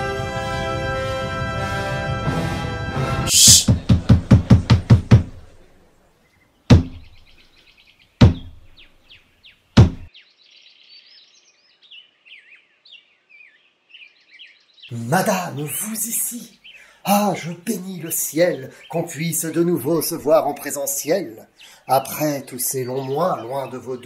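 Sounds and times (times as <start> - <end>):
birds chirping: 3.3 - 24.0
knocks on wood: 3.7 - 5.4, 6.7 - 7.2, 8.2 - 8.7, 9.8 - 10.1
loud slow knocks: 3.7 - 5.5, 6.7 - 7.2, 8.2 - 8.7, 9.8 - 10.1.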